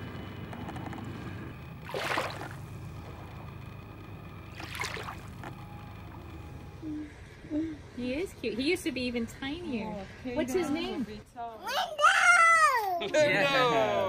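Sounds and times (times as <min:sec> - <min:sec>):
water lapping at shoreline: 0:01.8 - 0:02.8, 0:04.5 - 0:05.6.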